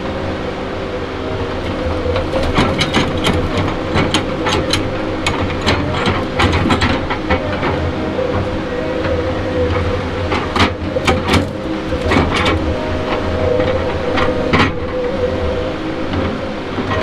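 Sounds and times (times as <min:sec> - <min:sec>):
diesel engine and hydraulics running: 0:00.0 - 0:17.0
sharp irregular clicks and knocks: 0:02.1 - 0:15.0.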